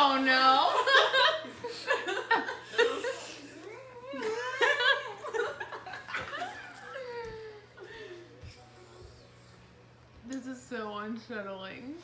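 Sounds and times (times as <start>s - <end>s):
woman laughing: 4.0s - 8.2s.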